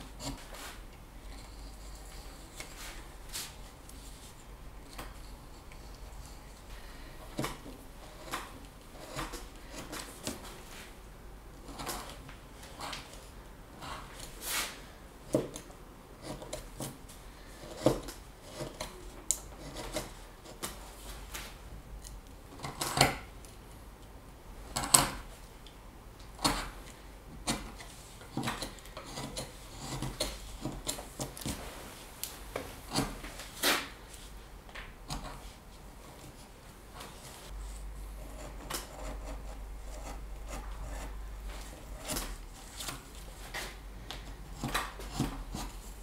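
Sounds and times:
carving tool shaving wood: 0.0s - 10.4s, 16.2s - 20.8s, 27.4s - 31.5s, 32.9s - 33.2s, 38.2s - 43.0s, 44.6s - 45.9s.

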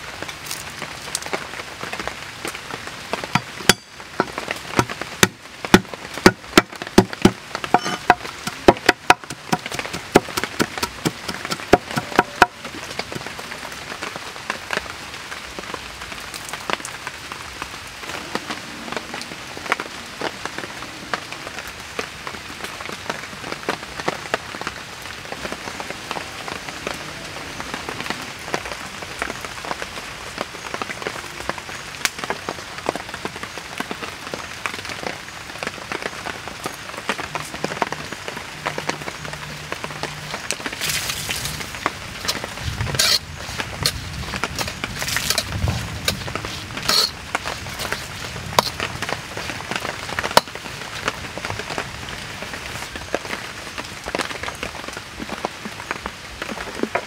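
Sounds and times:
knife chopping on wooden board: 7.0s - 12.6s.

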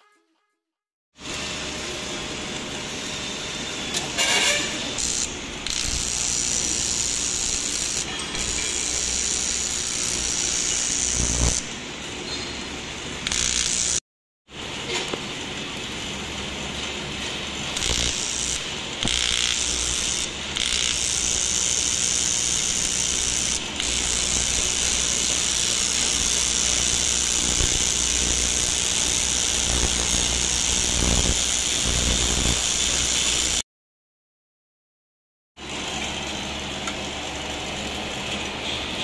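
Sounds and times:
welding arc buzzing: 4.1s - 12.0s, 12.9s - 14.0s, 17.6s - 33.6s.

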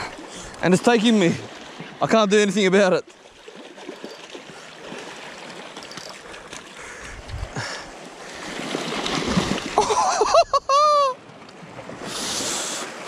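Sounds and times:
sea water swirling around rocks: 3.1s - 6.8s, 7.5s - 10.2s.

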